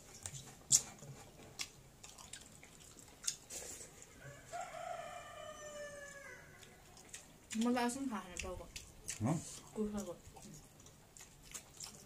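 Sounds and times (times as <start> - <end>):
mouth clicks of eating: 0.0 - 3.6, 6.0 - 12.0
rooster crowing: 4.2 - 6.8.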